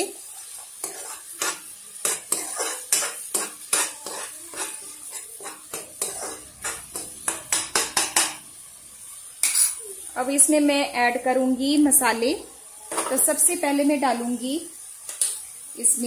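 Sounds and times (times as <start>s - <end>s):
faint sizzle of frying: 0.0s - 16.0s
spatula scraping metal pan: 0.5s - 8.4s.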